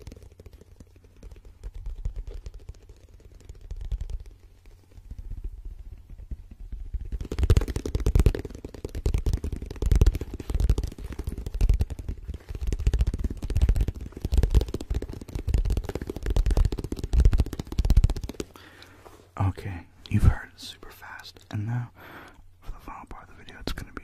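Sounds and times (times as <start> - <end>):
fingertips tapping and scratching case: 6.7 - 19.0.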